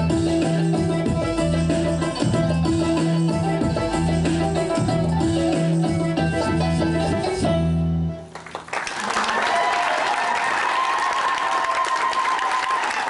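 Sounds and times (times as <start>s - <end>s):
belly dance music: 0.0s - 8.7s
audience applause and cheering: 8.3s - 13.0s.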